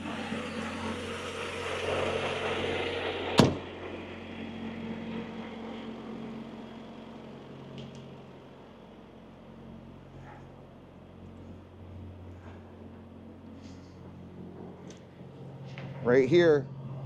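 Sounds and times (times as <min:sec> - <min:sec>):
truck door slamming: 0:03.4 - 0:03.6.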